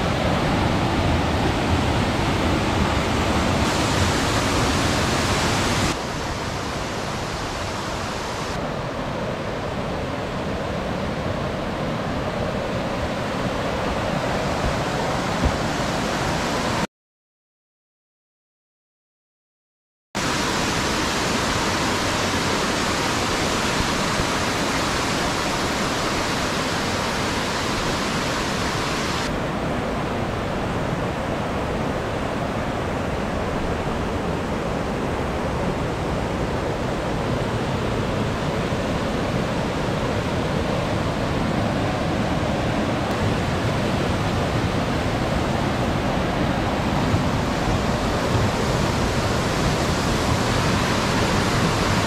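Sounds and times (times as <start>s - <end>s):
stream rushing over rocks: 0.0s - 8.7s, 20.2s - 52.0s.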